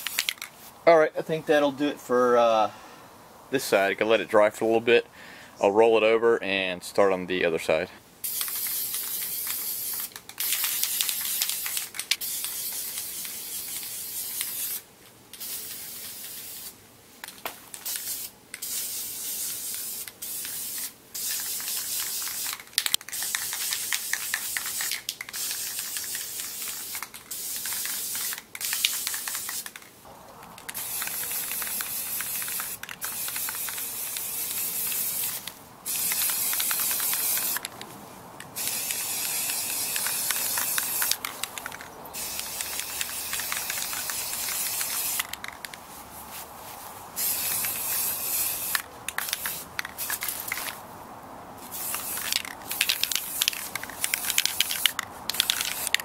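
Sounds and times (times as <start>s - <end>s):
spray paint can hissing: 0.0s - 0.5s, 8.2s - 16.8s, 17.7s - 29.9s, 30.6s - 37.8s, 38.5s - 45.8s, 47.2s - 50.8s, 51.7s - 56.0s.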